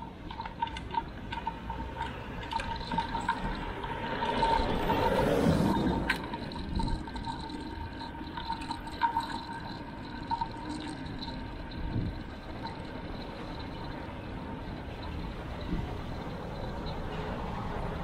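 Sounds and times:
road rumble: 0:00.0 - 0:18.0
wind noise: 0:11.6 - 0:12.8.

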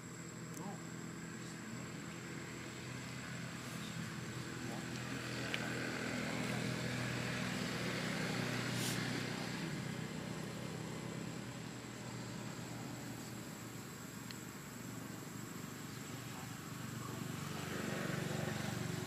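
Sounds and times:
passing vehicle engine hum: 0:00.0 - 0:19.0.

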